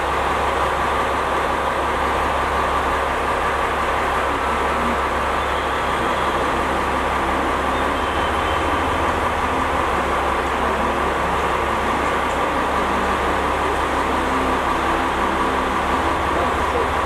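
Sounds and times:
diesel engine droning: 0.0 - 17.0
train rolling noise: 0.0 - 17.0.

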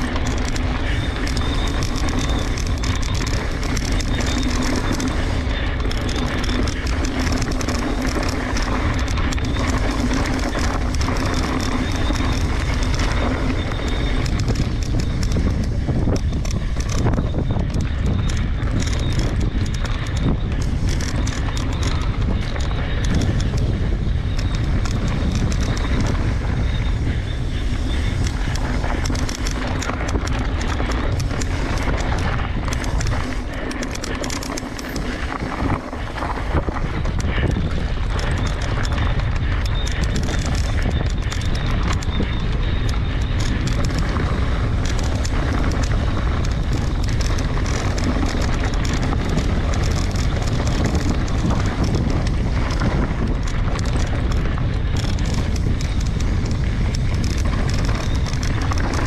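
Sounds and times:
bike rattling over rocks: 0.0 - 59.0
tyres crunching on gravel: 0.0 - 59.0
wind rushing over microphone: 0.0 - 59.0.

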